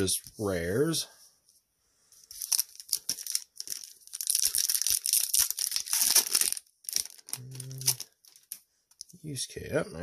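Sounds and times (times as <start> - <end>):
wrapper tearing and crinkling: 2.4 - 8.6.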